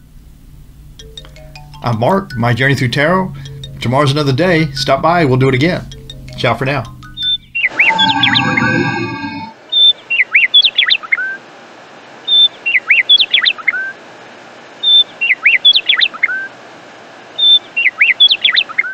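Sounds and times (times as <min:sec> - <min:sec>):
steady hiss: 0:00.0 - 0:07.1
bird song: 0:06.9 - 0:11.4, 0:12.2 - 0:13.9, 0:14.8 - 0:16.5, 0:17.4 - 0:18.9.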